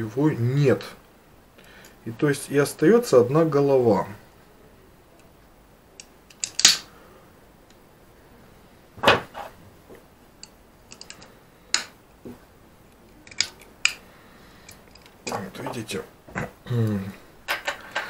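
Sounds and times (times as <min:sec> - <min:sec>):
small tools clicking on metal: 0:10.4 - 0:11.9, 0:13.2 - 0:14.0.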